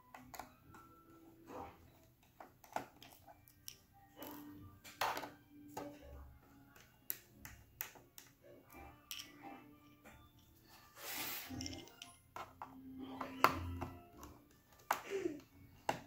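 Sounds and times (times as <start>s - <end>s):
screwdriver clicks and taps: 6.7s - 8.4s, 13.4s - 15.0s.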